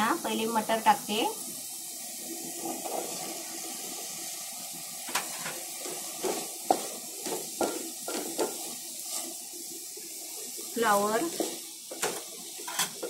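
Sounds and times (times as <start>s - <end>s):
steady hiss: 0.0s - 13.0s
wooden spatula scraping a metal pot: 2.6s - 3.4s, 5.1s - 9.4s, 11.2s - 13.0s.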